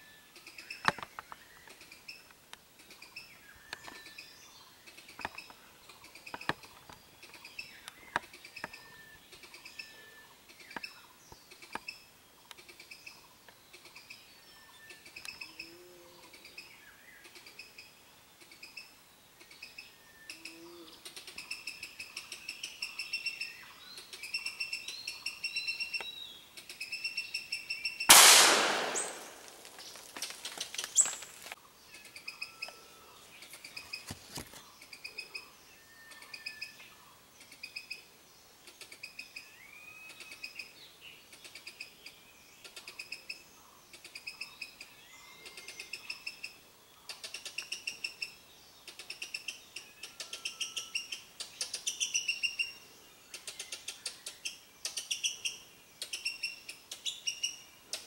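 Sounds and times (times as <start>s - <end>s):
rapid high chirping calls: 21.1s - 29.6s, 42.6s - 58.0s
gunshot: 28.1s - 29.7s
sharp crack: 28.1s - 31.6s.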